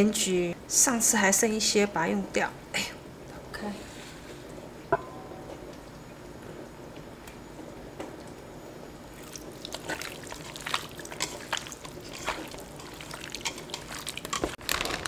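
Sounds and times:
hands squishing wet marinade: 9.1s - 14.6s.

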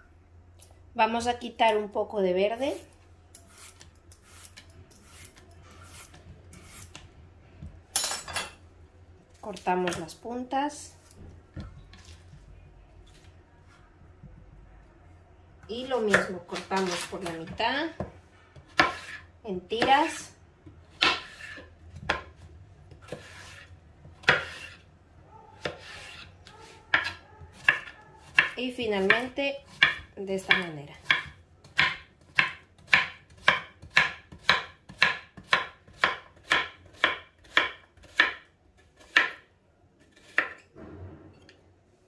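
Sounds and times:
low steady hum: 0.0s - 24.2s
blade scraping zucchini skin: 3.4s - 7.0s
knife chopping on cutting board: 15.9s - 19.2s, 20.9s - 24.8s, 25.6s - 39.4s, 40.1s - 40.6s.

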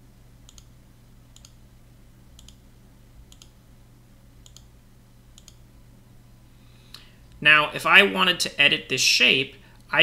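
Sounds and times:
faint low hum: 0.0s - 10.0s
computer mouse clicking: 0.5s - 0.7s, 1.4s - 1.6s, 2.4s - 2.6s, 3.3s - 3.6s, 4.4s - 4.7s, 5.4s - 5.6s.

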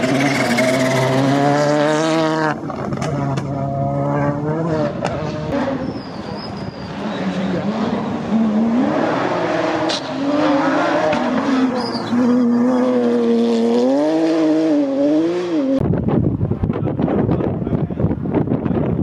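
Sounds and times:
rally car engine revving: 0.0s - 16.2s
wind noise on microphone: 15.6s - 19.0s.

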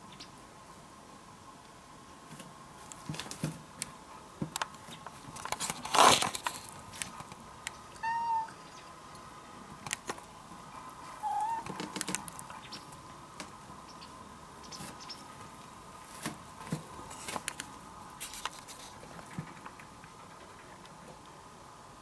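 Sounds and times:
cat meowing: 8.0s - 8.6s, 11.2s - 11.7s.

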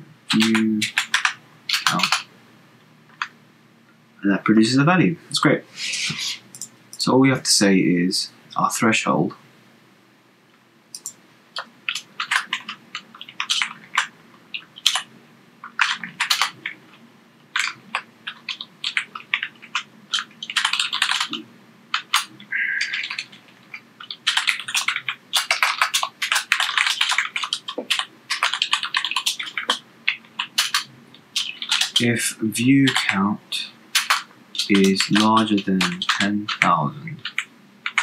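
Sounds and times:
computer keyboard typing: 0.3s - 2.3s, 6.5s - 6.7s, 11.0s - 33.3s, 33.9s - 38.0s.

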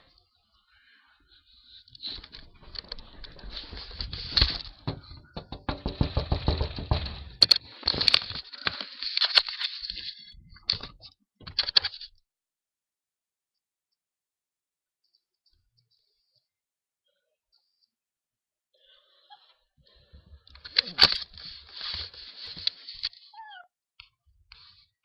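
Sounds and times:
sharp knocks and crackles: 2.1s - 12.2s.

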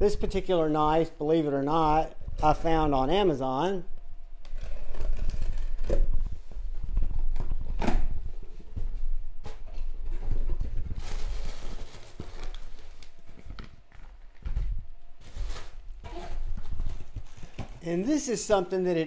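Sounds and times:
packaging rustling and tearing: 4.5s - 8.1s, 9.8s - 17.9s.

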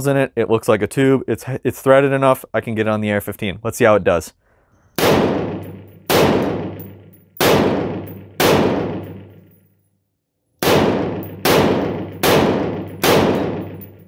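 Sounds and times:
rifle shots with echo: 5.0s - 9.6s, 10.6s - 14.0s.

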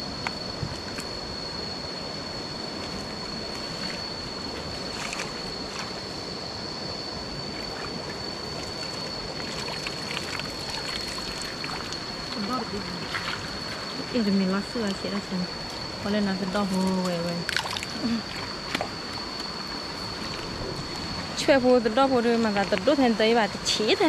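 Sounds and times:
stream water rushing: 7.3s - 14.7s.

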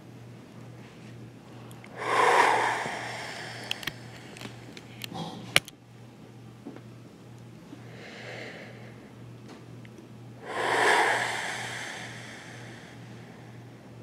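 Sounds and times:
person breathing: 1.9s - 5.0s, 7.9s - 9.0s, 10.4s - 13.8s.

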